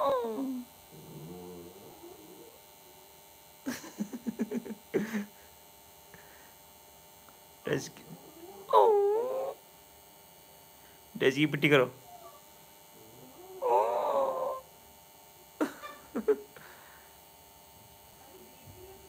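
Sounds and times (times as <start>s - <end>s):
dog grumbling: 0.0s - 2.6s, 7.9s - 9.6s, 13.0s - 14.7s
electrical hum: 0.0s - 19.0s.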